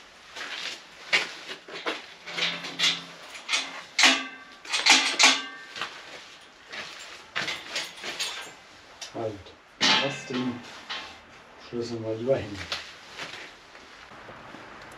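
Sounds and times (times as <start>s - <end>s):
metal gate clanking and rattling: 2.0s - 8.6s, 9.8s - 11.2s.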